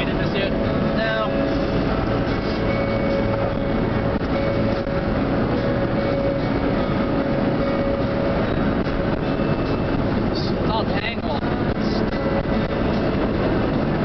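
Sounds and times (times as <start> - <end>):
faint steady whine: 0.0 - 14.0
low drone: 0.0 - 14.0
wind and road noise in car: 0.0 - 14.0.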